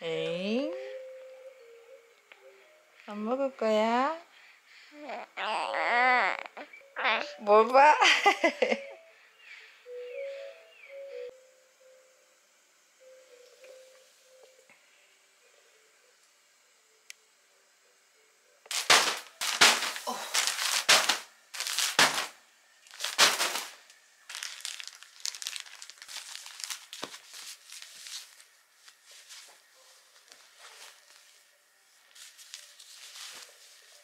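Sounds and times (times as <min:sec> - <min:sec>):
packaging ripping: 0:18.7 - 0:28.5
plastic crinkling: 0:18.7 - 0:29.6, 0:32.1 - 0:34.0.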